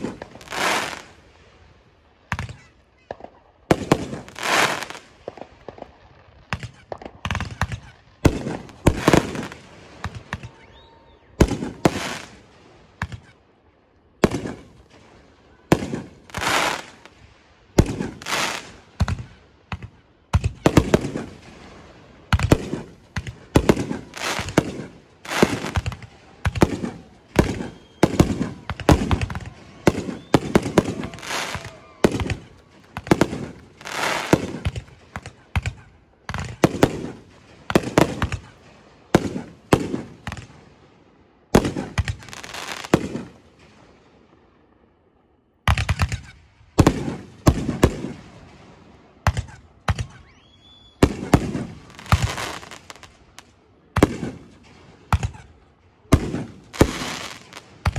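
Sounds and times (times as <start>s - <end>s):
fireworks bangs: 0.0s - 1.6s, 2.3s - 13.4s, 14.1s - 44.6s, 45.7s - 57.9s.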